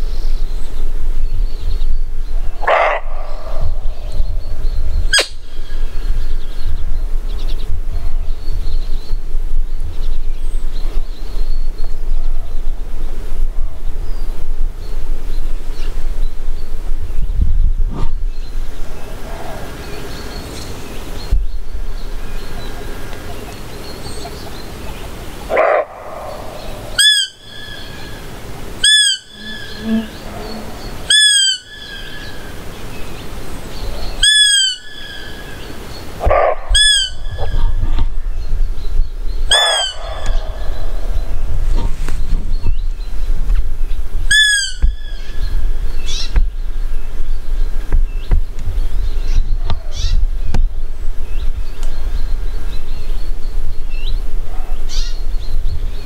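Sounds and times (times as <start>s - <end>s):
wind rumble on microphone: 0.0s - 56.0s
deer alarm bark: 2.6s - 3.2s, 25.5s - 26.4s, 39.5s - 40.6s
whistled deer calls: 25.6s - 28.2s, 28.8s - 32.5s, 34.2s - 35.6s, 39.5s - 40.8s, 44.3s - 45.1s.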